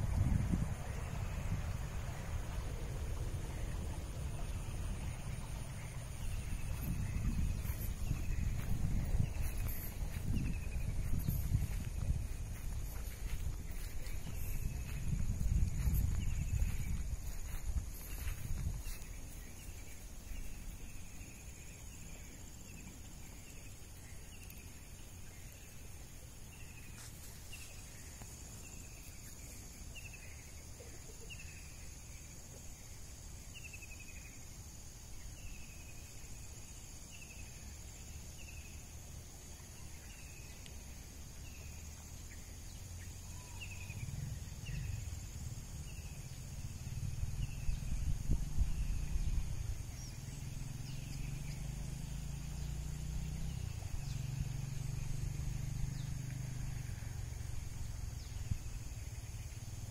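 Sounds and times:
low rumble: 0.0s - 19.7s
high insect drone: 0.0s - 59.9s.

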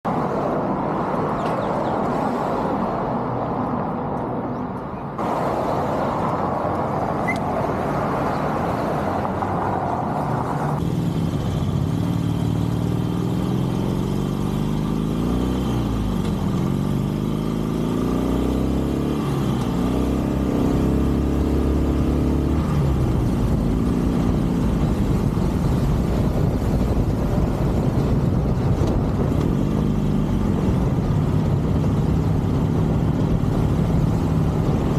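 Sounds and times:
traffic: 0.0s - 34.9s
motorcycle engine revving: 10.8s - 34.9s
wind noise: 19.0s - 34.9s.

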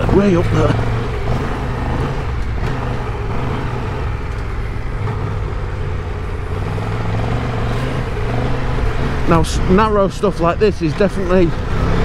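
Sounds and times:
motorcycle engine running: 0.0s - 6.6s
wind and road noise: 0.0s - 12.0s.

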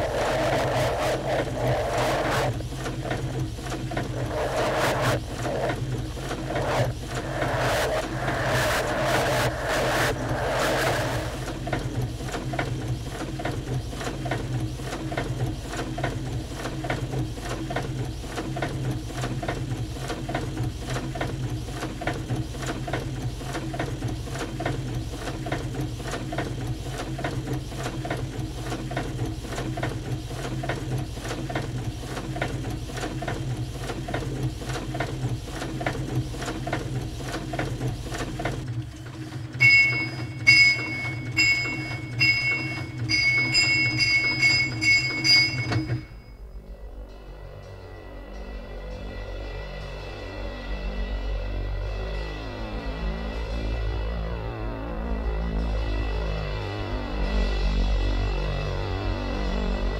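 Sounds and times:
low machinery hum: 0.0s - 59.9s
printing press clatter: 0.1s - 46.3s.

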